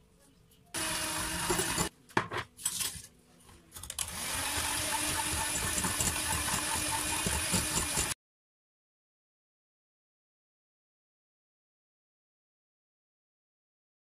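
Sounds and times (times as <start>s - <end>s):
electric hand mixer running: 0.8s - 1.9s, 4.0s - 8.2s.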